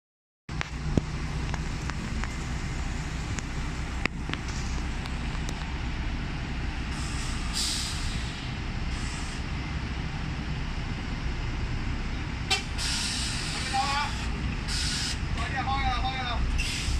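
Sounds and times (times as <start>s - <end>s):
diesel buses idling: 0.5s - 16.9s
brake air hiss: 6.8s - 9.5s, 12.5s - 15.4s, 16.5s - 16.9s.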